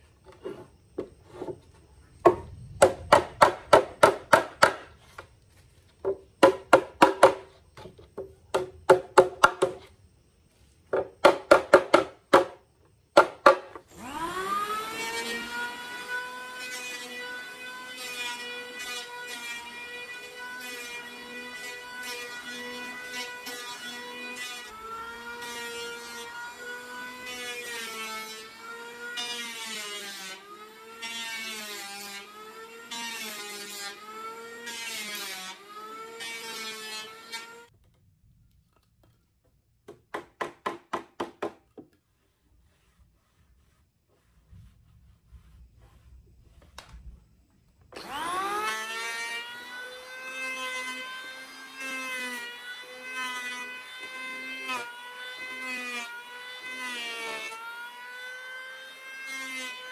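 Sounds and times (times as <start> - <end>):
power tool motor cutting wood: 13.9 - 37.7, 47.9 - 59.8.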